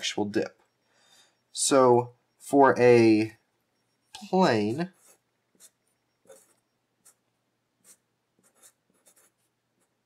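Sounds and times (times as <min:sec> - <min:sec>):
felt-tip marker scratching paper: 0:05.0 - 0:07.2, 0:07.8 - 0:09.5.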